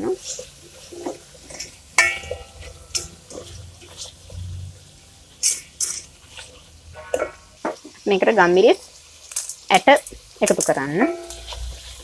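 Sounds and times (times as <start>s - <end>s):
spatula scraping in pot: 0.1s - 4.6s, 5.4s - 7.5s, 11.0s - 12.0s.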